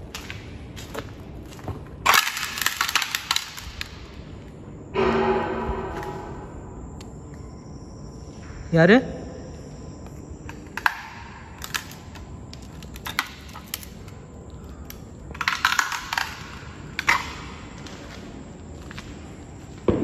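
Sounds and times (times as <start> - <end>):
footsteps crunching on gritty concrete: 0.0 - 2.5, 17.6 - 20.0.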